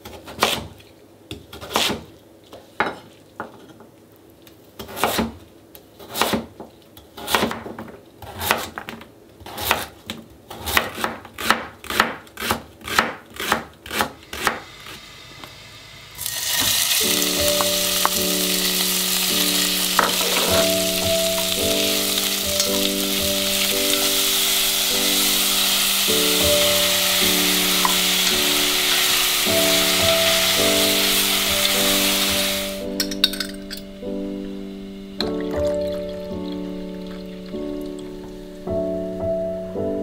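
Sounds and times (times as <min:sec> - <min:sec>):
meat sizzling in a pot: 0:14.3 - 0:38.8.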